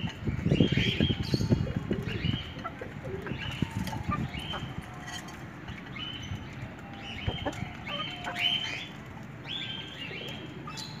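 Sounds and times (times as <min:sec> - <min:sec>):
chickens calling: 0:00.0 - 0:11.0.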